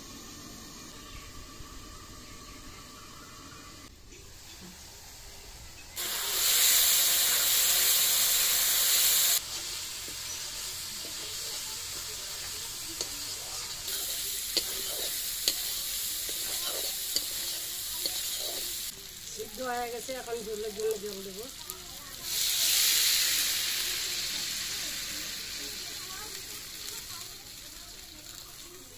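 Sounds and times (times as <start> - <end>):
loud sizzle of frying: 0.0 - 28.9
low frying hiss: 0.0 - 28.9
metal spatula clicking and scraping: 11.0 - 18.8.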